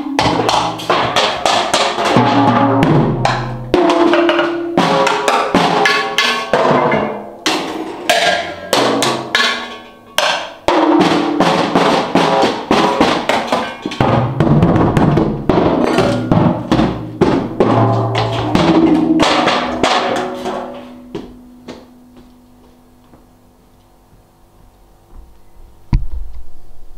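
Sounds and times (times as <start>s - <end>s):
hand-struck percussion on objects: 0.0s - 22.8s
low ringing note: 17.8s - 23.5s.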